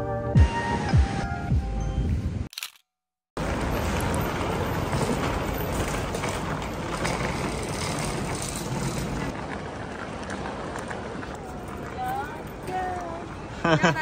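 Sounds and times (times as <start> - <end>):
background music: 0.0 - 2.1
suitcase wheels rolling on floor: 3.4 - 13.3
busy airport bustle: 3.4 - 14.0.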